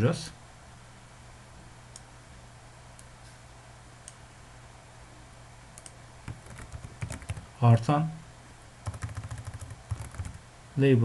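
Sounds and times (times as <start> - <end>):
steady low hum: 0.0 - 11.0
computer mouse clicks: 5.8 - 7.4.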